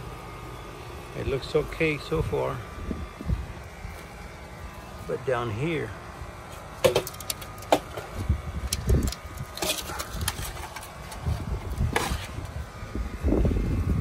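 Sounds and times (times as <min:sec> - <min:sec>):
faint machine hum: 0:00.0 - 0:14.0
debris clicking and crackling: 0:08.7 - 0:11.2.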